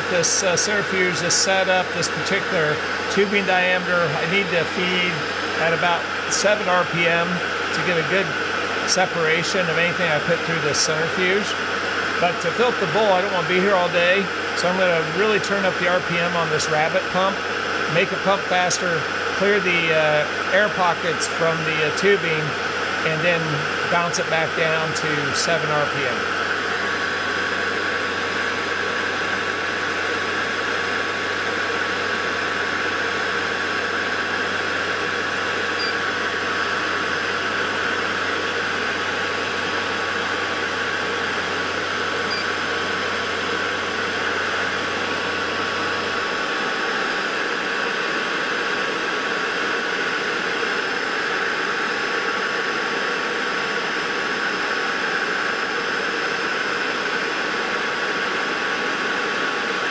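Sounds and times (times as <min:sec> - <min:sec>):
centrifuge whirring with high whine: 0:00.0 - 0:59.9
peristaltic pump running: 0:00.0 - 0:59.9.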